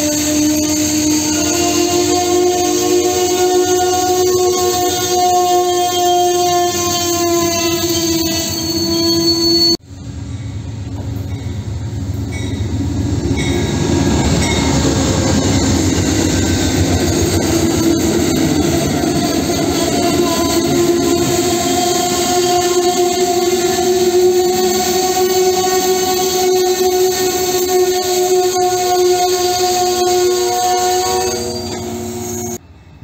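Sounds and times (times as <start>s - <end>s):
passenger train passing: 0.0s - 33.0s.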